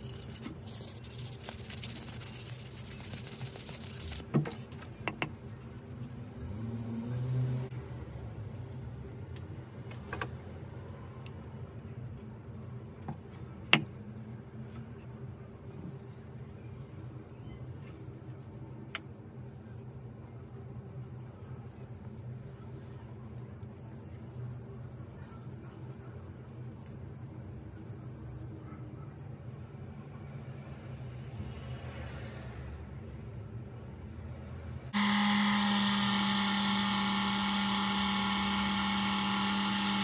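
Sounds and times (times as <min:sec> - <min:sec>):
cloth rubbing on wood: 0:00.0 - 0:04.3.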